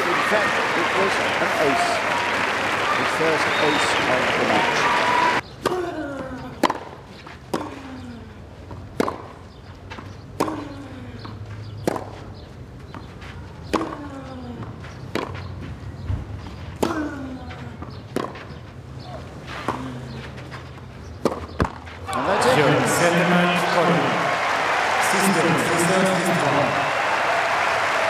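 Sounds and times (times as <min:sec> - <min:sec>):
tennis ball bouncing: 0:06.6 - 0:07.8, 0:08.7 - 0:15.5, 0:16.4 - 0:17.2, 0:17.8 - 0:19.9, 0:21.2 - 0:22.4
racket hitting tennis ball: 0:09.0 - 0:09.3, 0:10.4 - 0:10.7, 0:11.8 - 0:12.2, 0:15.1 - 0:15.5, 0:18.1 - 0:18.6, 0:21.2 - 0:21.8.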